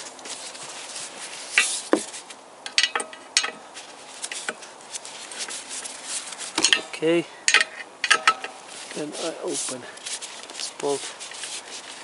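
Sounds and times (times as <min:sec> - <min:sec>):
wrench clinking on bolts: 0:02.7 - 0:03.6, 0:06.6 - 0:08.6.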